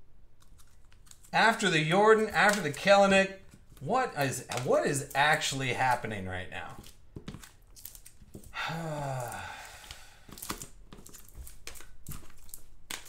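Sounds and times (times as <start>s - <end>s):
man's wordless vocal sound: 8.6s - 9.8s.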